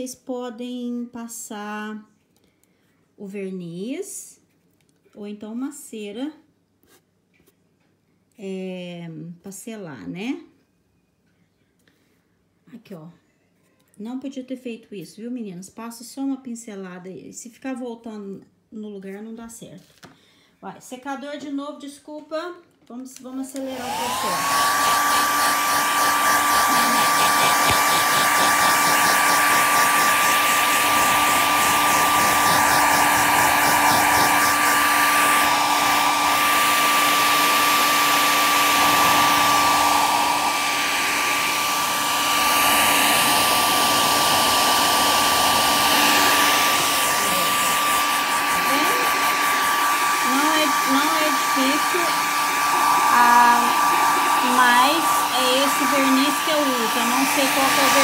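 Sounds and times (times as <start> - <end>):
hair dryer blowing: 23.3 - 58.0.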